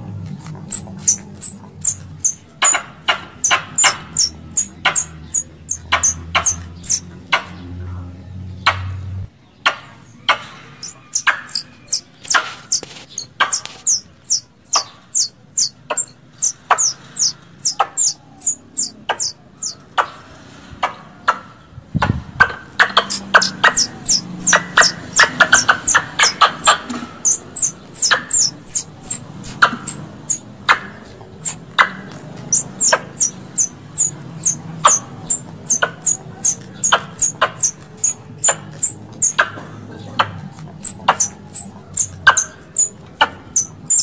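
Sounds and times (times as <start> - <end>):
squirrels chirping: 0.6 - 7.8, 8.5 - 21.0, 21.6 - 44.0.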